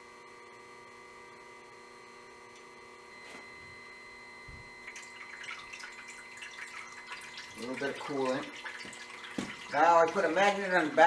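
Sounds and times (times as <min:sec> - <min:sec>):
coolant trickling and dripping: 0:04.7 - 0:11.0.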